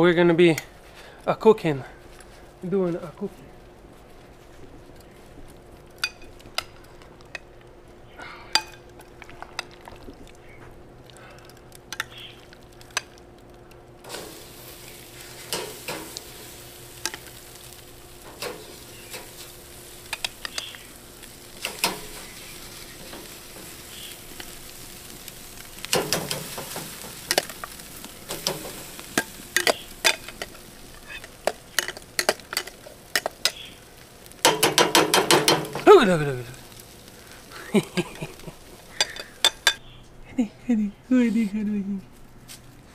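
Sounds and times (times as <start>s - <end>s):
meat sizzling on grill: 3.0s - 39.8s
metal tongs clicking and scraping: 8.5s - 9.7s, 18.2s - 20.8s, 21.5s - 22.3s, 28.3s - 33.6s, 39.0s - 39.8s.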